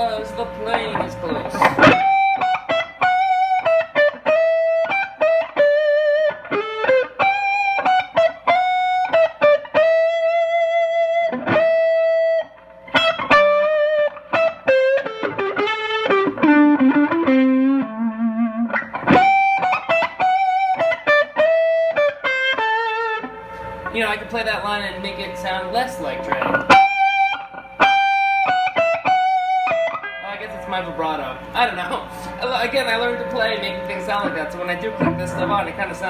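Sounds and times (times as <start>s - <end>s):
electric guitar lead line: 0.0s - 36.0s.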